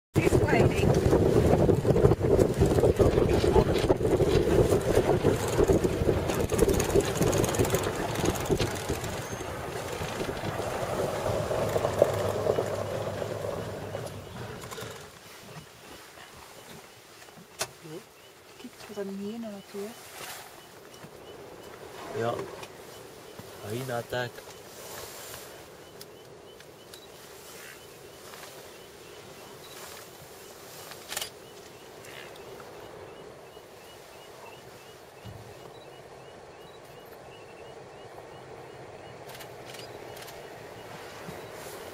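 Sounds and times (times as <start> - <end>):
wind buffeting microphone: 0.2 - 15.1, 24.7 - 41.9
vehicle engine and road rumble: 0.2 - 41.9.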